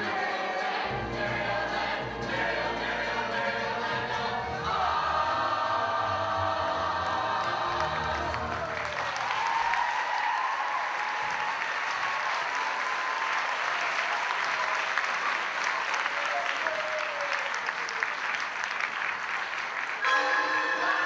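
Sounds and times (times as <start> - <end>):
music: 0.0 - 9.4, 20.0 - 21.0
audience applauding: 6.9 - 21.0.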